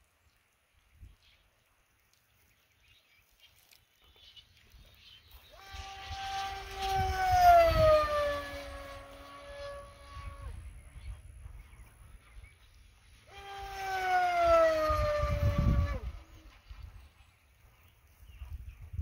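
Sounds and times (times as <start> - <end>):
model plane motor and propeller whine: 5.4 - 18.0.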